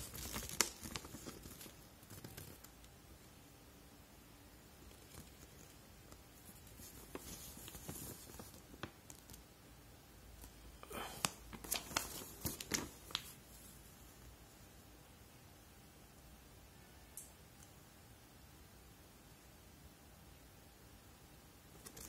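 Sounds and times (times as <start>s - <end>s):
paper rustling and crinkling: 0.0s - 2.8s, 4.8s - 9.4s, 11.2s - 13.9s
sharp paper crackles: 0.0s - 2.8s, 4.9s - 9.4s, 11.2s - 13.4s, 21.8s - 22.0s.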